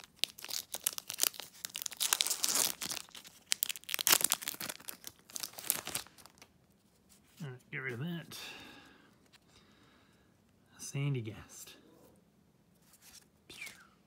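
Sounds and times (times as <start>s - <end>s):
foil wrapper tearing and crinkling: 0.0s - 6.5s.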